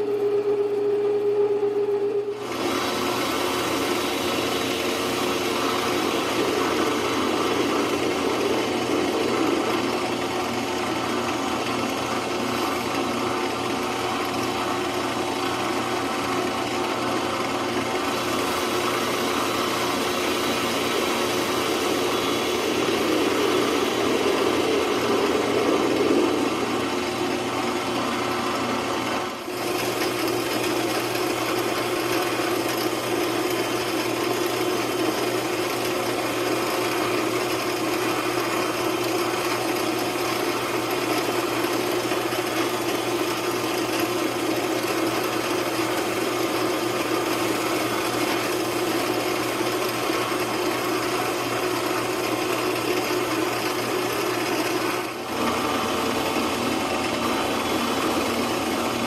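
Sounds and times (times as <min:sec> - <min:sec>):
metal lathe motor hum: 0:00.0 - 0:59.0
tool cutting steel hiss: 0:18.1 - 0:26.7.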